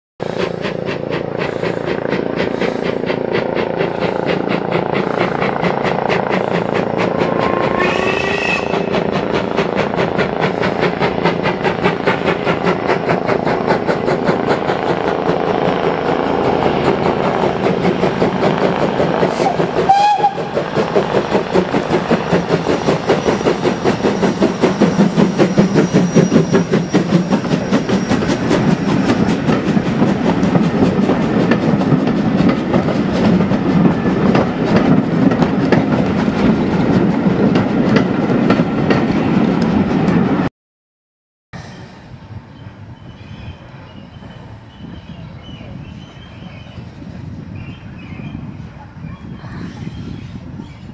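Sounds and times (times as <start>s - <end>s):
train wheels clattering over rail joints: 0.2s - 7.8s, 8.6s - 40.5s
steam locomotive exhaust beating: 0.2s - 40.5s.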